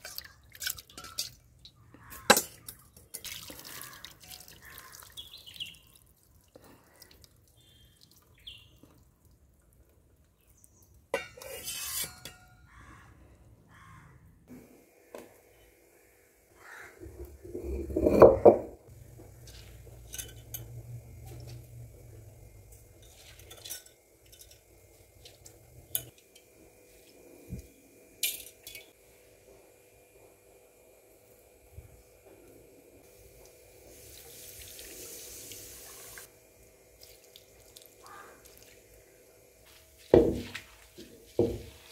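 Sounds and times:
water pouring and dripping: 0.0s - 1.8s, 2.5s - 10.7s, 33.0s - 39.0s.

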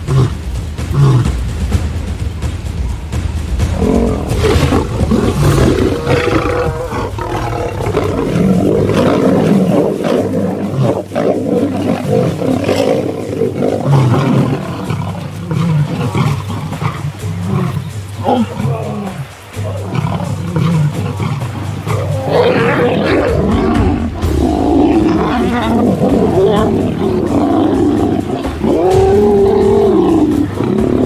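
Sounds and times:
lions snarling and roaring: 0.0s - 1.5s, 3.7s - 31.0s.

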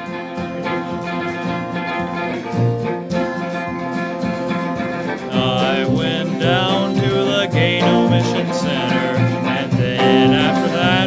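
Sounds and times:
electric guitar: 0.0s - 11.0s
strummed acoustic guitar: 0.0s - 11.0s
upright bass: 5.2s - 11.0s.

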